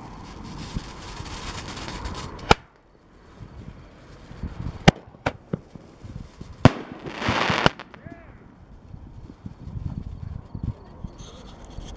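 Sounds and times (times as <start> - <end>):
roman candle pops and bangs: 2.4 - 2.7.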